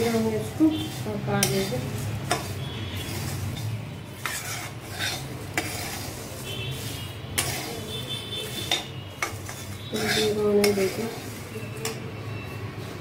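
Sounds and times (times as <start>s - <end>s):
spatula scraping metal pan: 0.0s - 12.1s
dry rustle of roasting rice: 0.7s - 11.5s.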